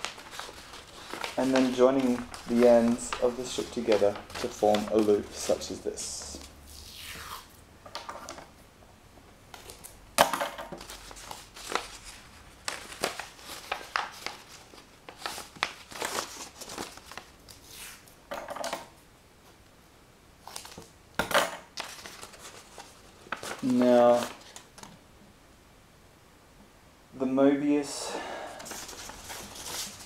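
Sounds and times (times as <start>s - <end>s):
stiff paper crinkling: 0.0s - 6.5s, 10.8s - 17.9s, 21.8s - 24.9s, 28.6s - 30.0s
masking tape tearing off roll: 6.7s - 7.6s.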